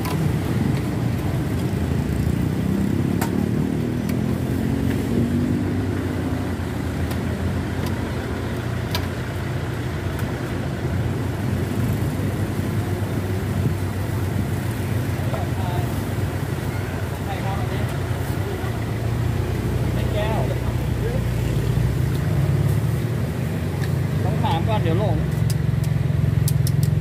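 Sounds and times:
low rumble of road traffic: 0:00.0 - 0:27.0
passing vehicle engine: 0:00.0 - 0:27.0
faint sharp clicks: 0:25.3 - 0:27.0.

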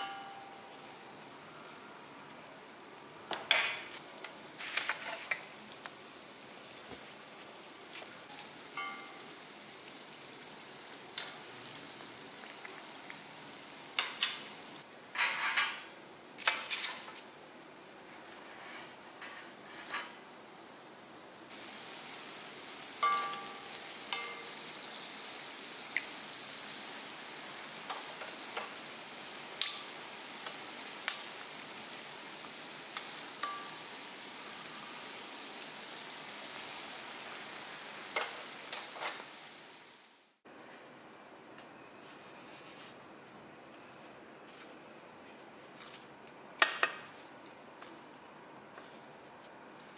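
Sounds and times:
donuts sizzling in hot oil: 0:00.0 - 0:14.9, 0:16.4 - 0:40.4
tongs clinking against pan: 0:08.8 - 0:09.3, 0:23.0 - 0:24.6, 0:33.4 - 0:33.8.

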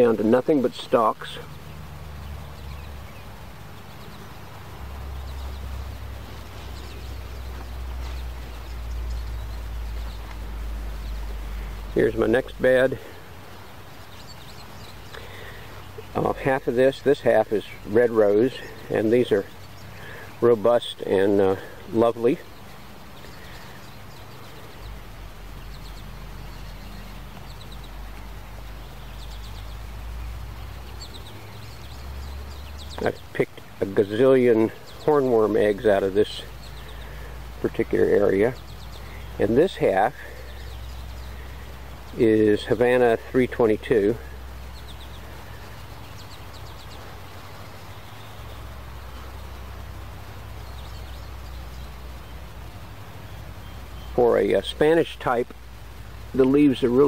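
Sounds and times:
high bird chirps: 0:00.9 - 0:54.9
footsteps on grass: 0:03.2 - 0:12.6.

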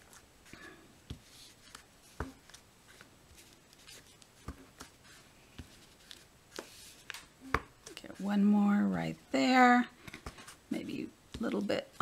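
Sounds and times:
paper rustling: 0:00.0 - 0:08.0.

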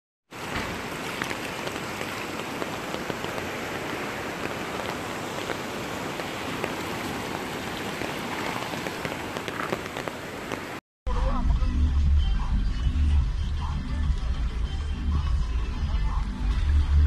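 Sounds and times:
floodwater rushing: 0:00.3 - 0:10.8
rain tapping: 0:00.3 - 0:10.8.

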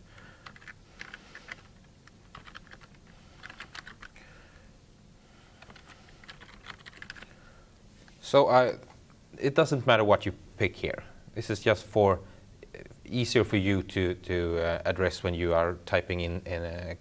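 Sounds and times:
computer keyboard typing: 0:00.4 - 0:04.2, 0:05.6 - 0:07.3.

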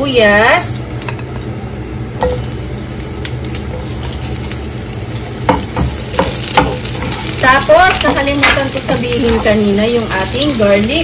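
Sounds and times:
onion sizzling in oil: 0:00.0 - 0:11.0
spatula tapping and scraping pan: 0:05.5 - 0:09.7.

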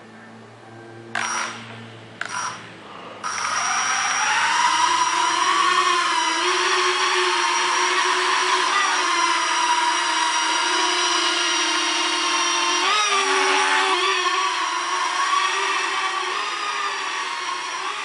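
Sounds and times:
toy quadcopter motors whining: 0:01.2 - 0:01.6, 0:02.2 - 0:18.0.

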